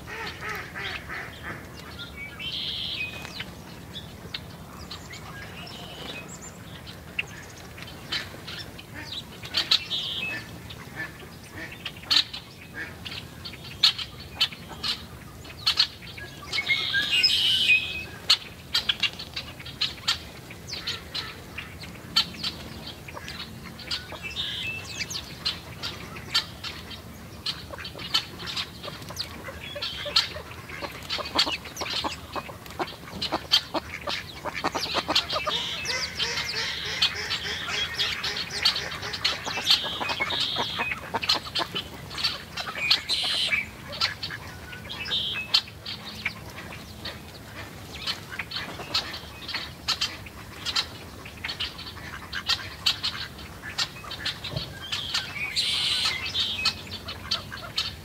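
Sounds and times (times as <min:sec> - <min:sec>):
birds chipping and calling: 0:00.0 - 0:58.0
drawn-out bird calls: 0:00.0 - 0:58.0.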